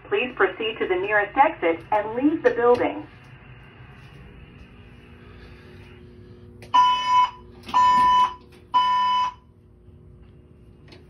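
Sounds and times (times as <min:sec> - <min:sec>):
fire alarm beeps: 0:06.7 - 0:09.5.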